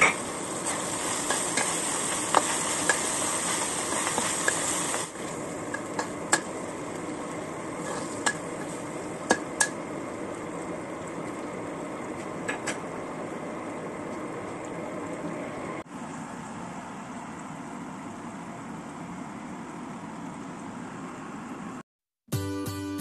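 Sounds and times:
food sizzling: 0.0 - 15.7
metal spatula scraping a wok: 7.8 - 8.7.

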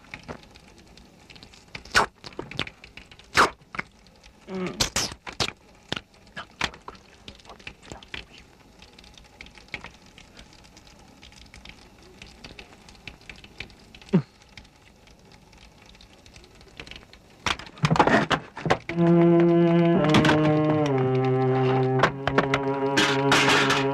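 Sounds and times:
faint ticks and taps: 0.0 - 4.4, 5.4 - 17.7
low hiss: 0.0 - 17.8.

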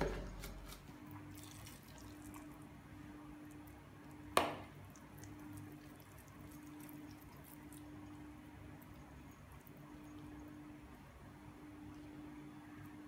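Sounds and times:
low steady hum: 0.0 - 13.0
wet squishing of ground meat: 1.0 - 2.8, 3.5 - 10.4.

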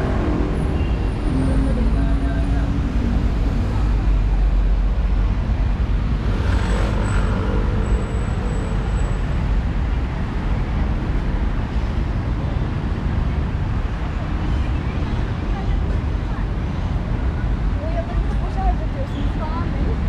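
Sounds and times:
traffic rumble: 0.0 - 20.0.

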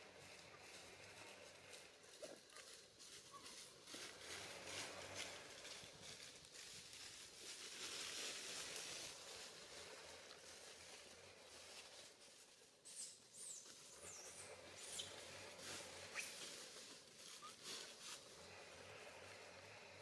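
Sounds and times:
short high squeaks: 16.1 - 16.5.

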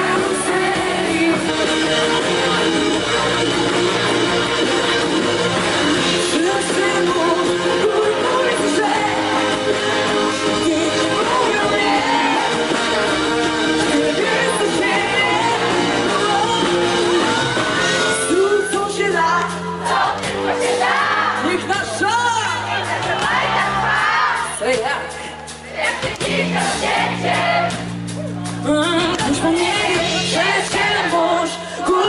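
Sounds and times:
woman singing into a microphone: 0.0 - 1.9, 6.2 - 12.5, 13.9 - 19.7, 28.6 - 32.0
drums: 0.0 - 32.0.

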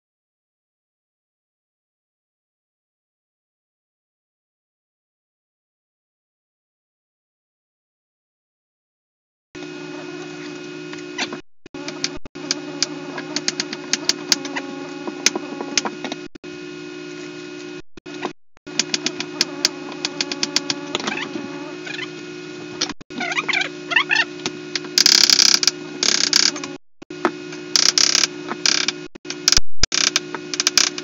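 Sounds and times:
steady low hum: 9.6 - 31.0.

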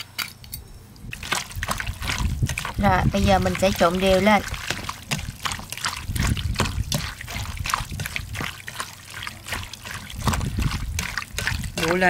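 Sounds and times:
hands squelching raw chicken: 1.1 - 12.0.

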